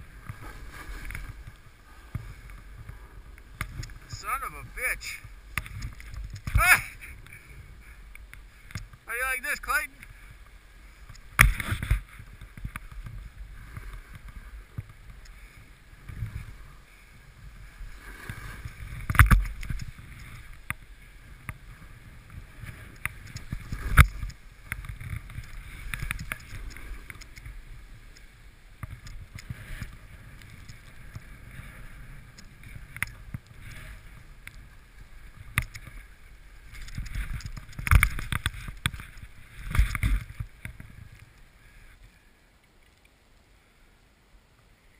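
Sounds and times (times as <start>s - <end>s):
snowboard rushing through powder: 0.0s - 5.5s.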